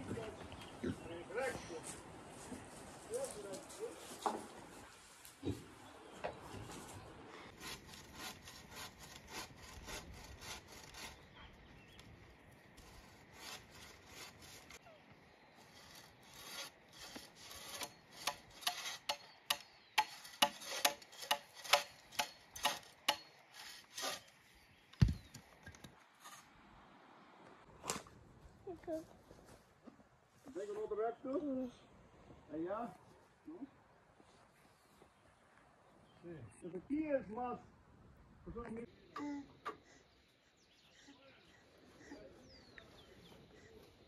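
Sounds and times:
bow saw cutting wood: 7.5s - 11.4s, 12.8s - 14.8s, 15.6s - 24.4s.

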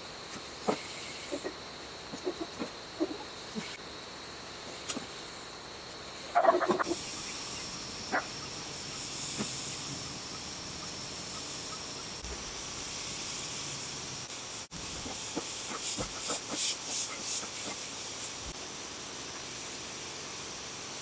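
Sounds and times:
high-pitched hiss: 0.0s - 21.0s
fowl calling: 0.7s - 3.7s, 6.3s - 7.2s, 8.1s - 9.5s.

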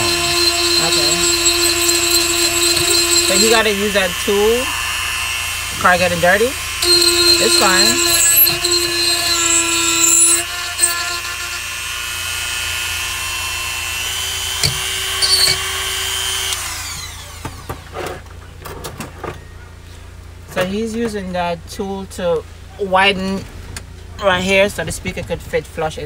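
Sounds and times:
rotary tool grinding whine: 0.0s - 17.8s.

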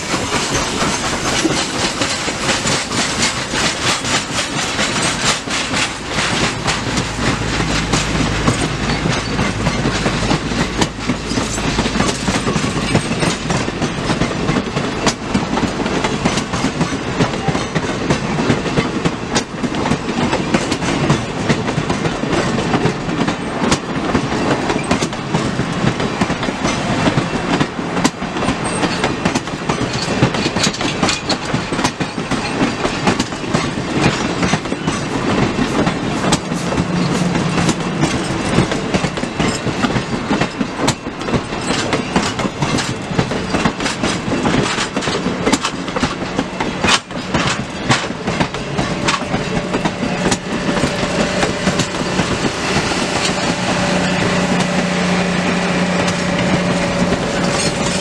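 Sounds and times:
train rumble and rattle: 0.0s - 58.0s
train wheels clacking over rail joints: 0.0s - 58.0s.

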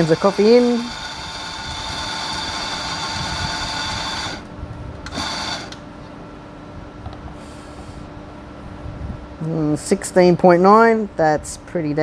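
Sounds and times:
coffee grinder motor: 0.0s - 5.8s.

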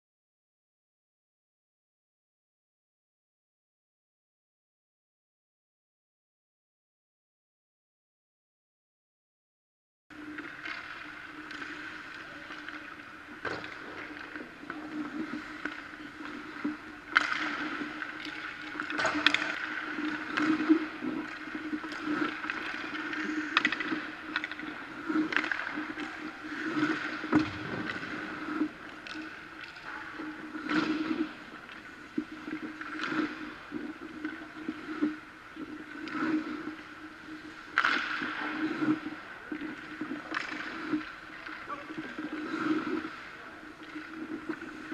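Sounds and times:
skates scraping on ice: 10.2s - 44.9s.

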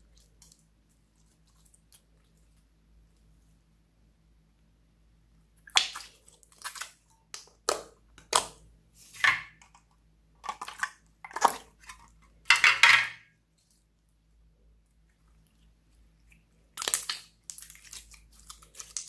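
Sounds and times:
slime squelching: 0.0s - 3.3s, 5.5s - 9.6s, 10.4s - 12.5s, 15.0s - 19.0s.

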